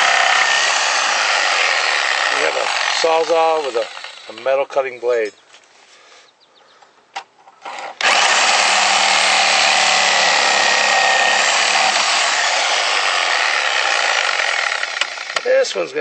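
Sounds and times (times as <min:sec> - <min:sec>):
reciprocating saw cutting screws: 0:00.0 - 0:04.6, 0:07.6 - 0:15.5.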